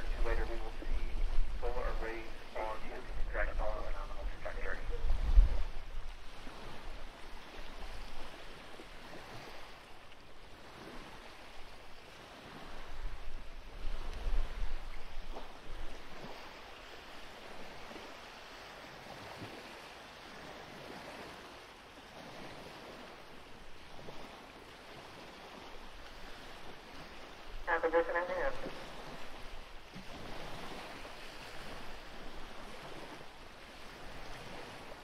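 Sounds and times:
wind buffeting microphone: 0:00.0 - 0:09.8, 0:10.4 - 0:18.2.

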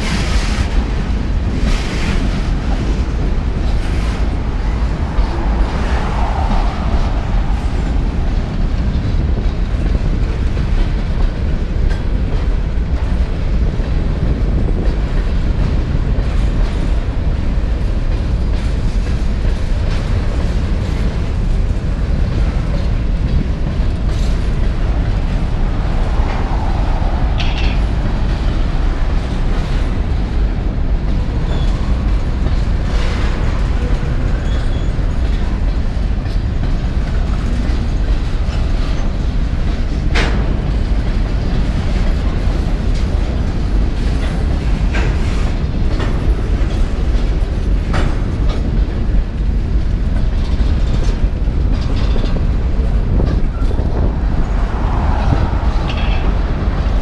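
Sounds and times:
train wheels rumbling on rails: 0:00.0 - 0:57.0
wheels clicking over rail joints: 0:00.0 - 0:57.0.

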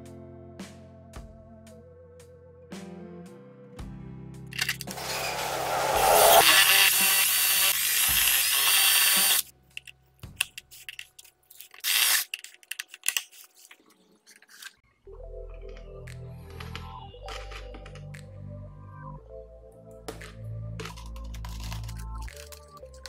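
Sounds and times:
background music: 0:00.0 - 0:11.6, 0:14.9 - 0:23.0
power drill drilling: 0:04.9 - 0:09.4.

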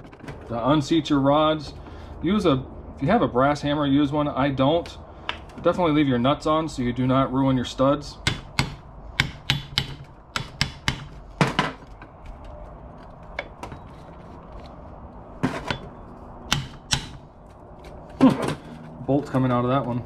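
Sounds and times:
hammer knocking on metal: 0:08.2 - 0:11.9, 0:15.4 - 0:17.2.

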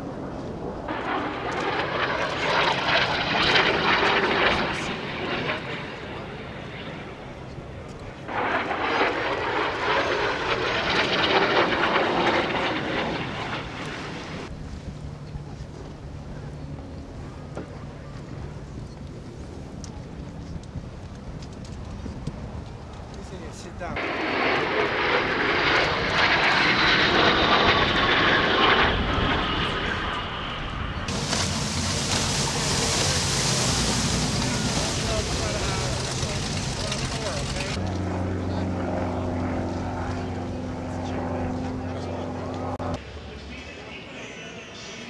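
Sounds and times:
jet aircraft roaring past: 0:00.0 - 0:19.5, 0:23.2 - 0:45.0.

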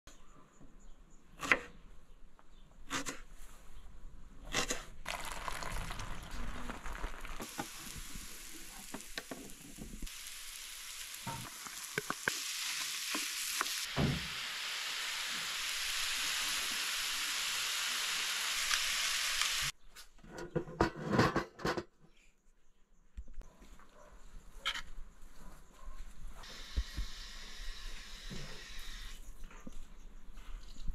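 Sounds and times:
vegetables sizzling in oil: 0:05.1 - 0:19.8.

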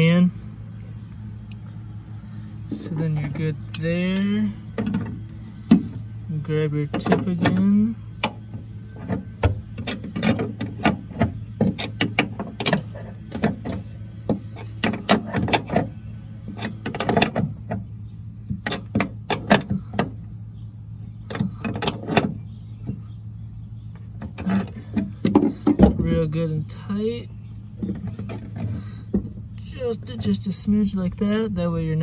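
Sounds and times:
steady low hum: 0:00.0 - 0:32.0.

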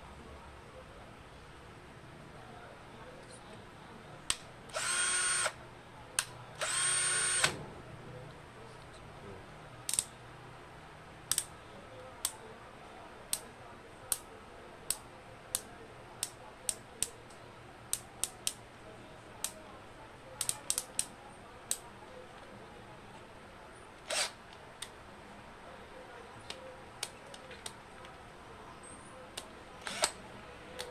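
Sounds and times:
cordless drill motor running: 0:04.7 - 0:05.6, 0:06.6 - 0:07.6, 0:24.1 - 0:24.4, 0:29.8 - 0:30.2.

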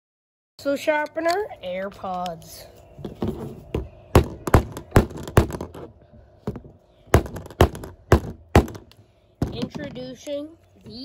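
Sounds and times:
hammer knocking on plastic: 0:03.7 - 0:08.8.

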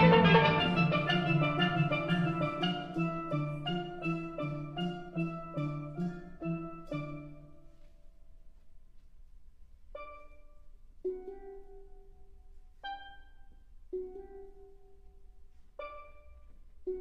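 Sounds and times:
steelpan orchestra chords: 0:00.0 - 0:07.8.

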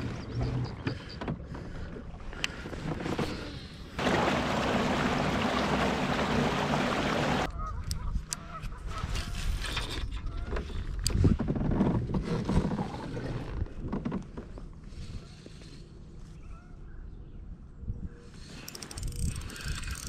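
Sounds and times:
wind and water rushing: 0:04.0 - 0:07.5
fishing reel clicking and rattling: 0:18.5 - 0:20.0.

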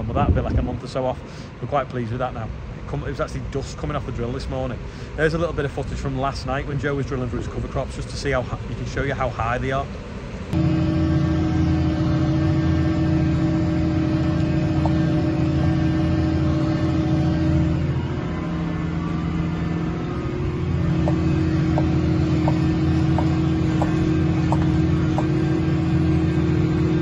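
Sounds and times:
tractor engine under load: 0:10.4 - 0:27.0.

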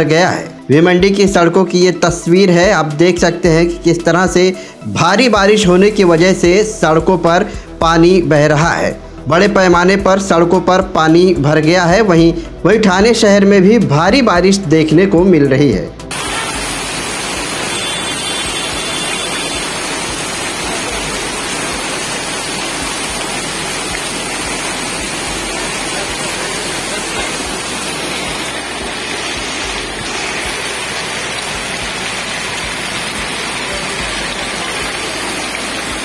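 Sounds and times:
heavy rain on standing water: 0:16.1 - 0:36.0.

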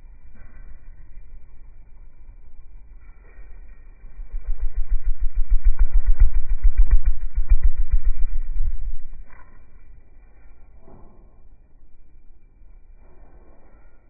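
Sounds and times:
slowed hummingbird wingbeats thrum: 0:00.0 - 0:14.0.

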